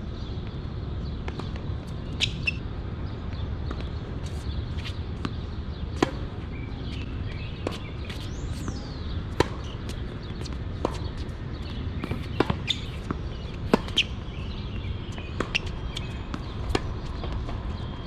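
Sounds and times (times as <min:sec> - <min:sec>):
tennis ball striking racket: 0:04.9 - 0:06.4, 0:09.4 - 0:17.6.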